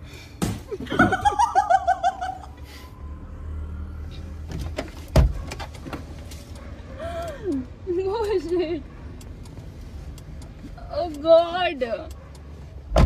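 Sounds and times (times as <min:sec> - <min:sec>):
car door opening clicks and thump: 0:04.5 - 0:06.2.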